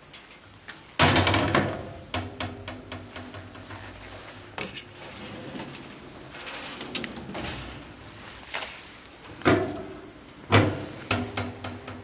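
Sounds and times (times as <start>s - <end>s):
metal cabinet clattering shut: 1.0s - 3.7s, 5.0s - 8.0s, 9.4s - 12.0s.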